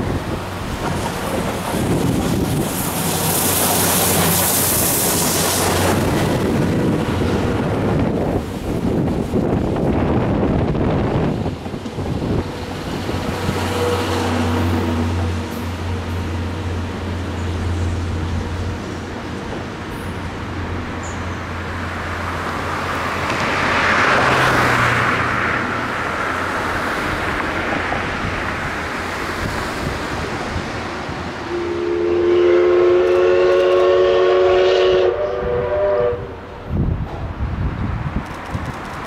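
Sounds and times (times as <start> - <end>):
rushing noise: 0.0 - 34.0
steam whistle blast: 31.5 - 36.5.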